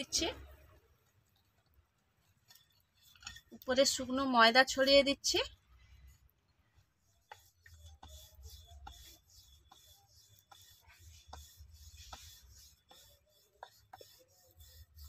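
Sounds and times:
rolling pin rubbing on dough: 0:06.8 - 0:15.0.

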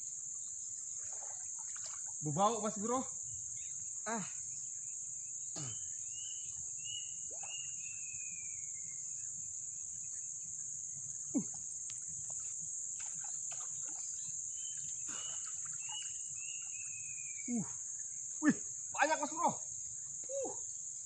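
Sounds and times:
insects droning: 0:00.0 - 0:21.0
whistled bird calls: 0:05.6 - 0:09.0, 0:14.0 - 0:17.7.

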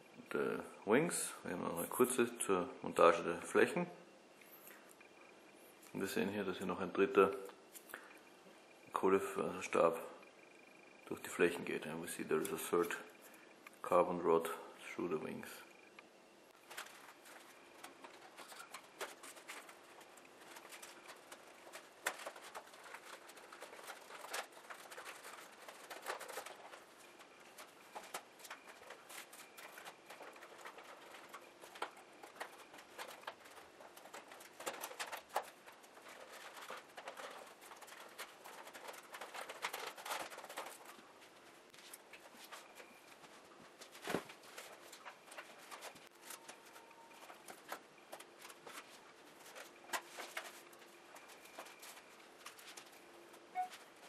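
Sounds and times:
foam parts rustling and rubbing: 0:16.5 - 0:54.0.

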